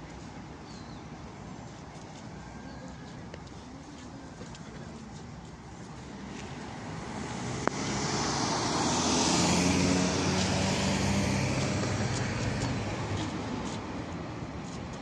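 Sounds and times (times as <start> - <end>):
vehicle driving past: 6.7 - 13.5.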